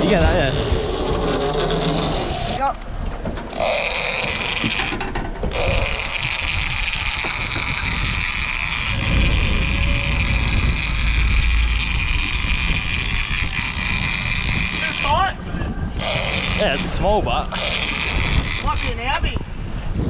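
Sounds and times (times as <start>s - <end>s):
outboard engine running: 0.0s - 2.7s, 3.4s - 19.3s
water rushing along hull: 3.4s - 20.0s
wind buffeting microphone: 4.3s - 20.0s
steady high whine: 5.6s - 19.6s.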